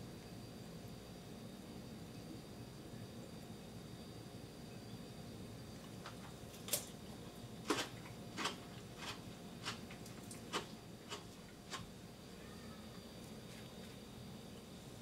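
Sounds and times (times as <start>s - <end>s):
radish crunching as chewed: 7.6s - 11.9s.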